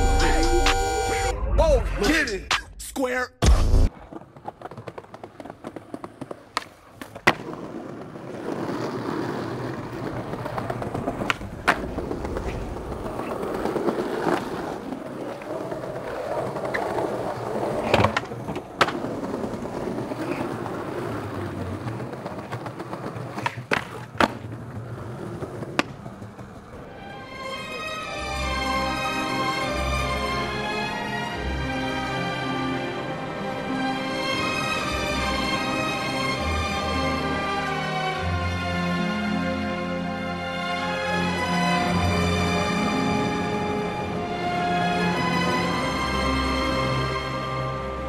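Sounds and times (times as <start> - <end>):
skateboard wheels rolling on concrete: 0.0 - 1.2, 3.6 - 48.0
skateboard clacking: 3.9 - 31.3, 32.5 - 38.3.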